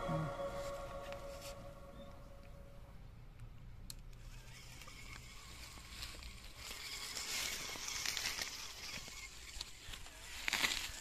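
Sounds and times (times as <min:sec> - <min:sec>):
toy wheels rustling over leaves: 0:04.2 - 0:11.0.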